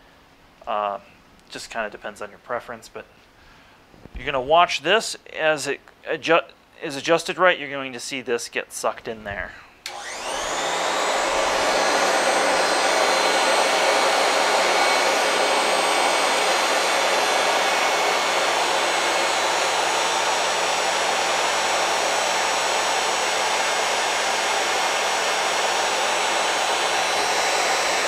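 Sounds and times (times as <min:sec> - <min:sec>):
vacuum cleaner running: 0:09.8 - 0:28.0.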